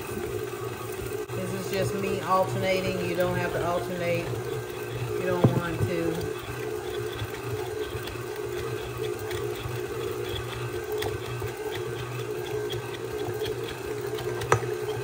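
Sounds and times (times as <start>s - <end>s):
stand mixer churning batter: 0.0s - 15.0s.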